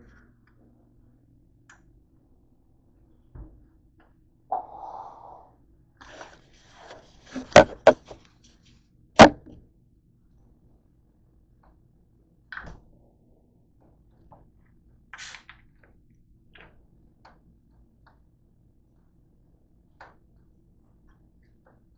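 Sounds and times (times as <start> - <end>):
knocks on tabletop: 7.4 - 8.2.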